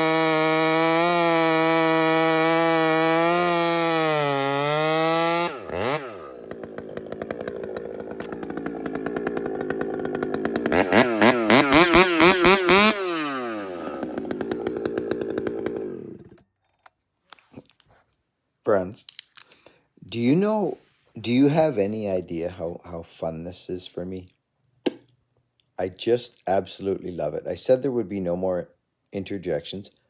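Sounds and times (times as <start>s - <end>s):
chainsaw revving: 0.0s - 16.4s.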